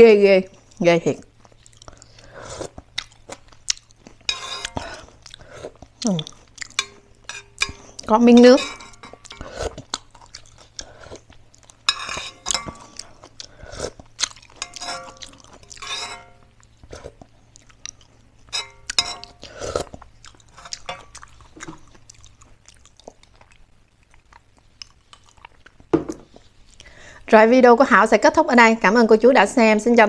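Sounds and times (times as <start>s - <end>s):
person slurping and chewing: 1.5s - 8.1s, 8.8s - 23.5s
metal spoon clinking on pan: 4.3s - 4.8s, 6.7s - 9.5s, 11.9s - 13.0s, 14.5s - 16.5s, 18.5s - 19.4s, 20.6s - 21.2s.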